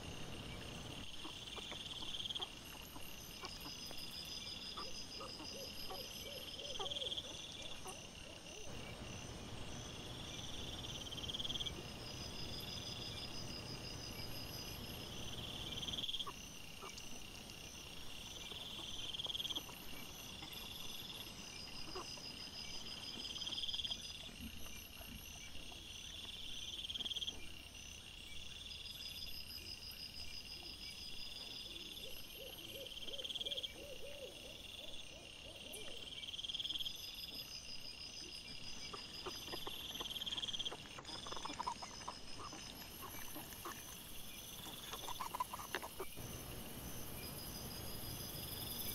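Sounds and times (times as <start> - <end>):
high insect chirping: 0.0 - 48.9
insect trill: 0.0 - 48.9.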